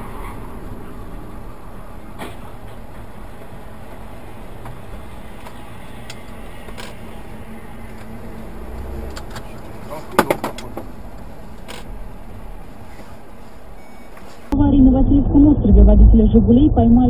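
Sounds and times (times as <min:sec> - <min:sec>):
car road and engine noise: 0:00.0 - 0:17.0.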